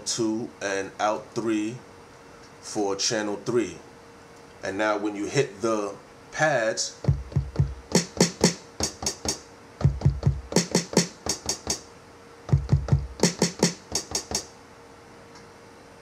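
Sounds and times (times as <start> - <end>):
deep kick drum thumps: 7.0 - 11.8, 12.5 - 14.4
snare and hi-hat hits: 7.0 - 11.9, 12.5 - 14.5.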